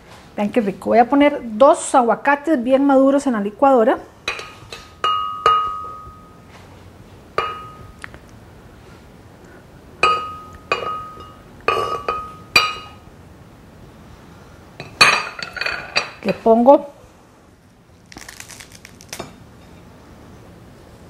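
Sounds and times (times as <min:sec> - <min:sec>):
spatula clinking on glass jar: 0:04.3 - 0:06.4.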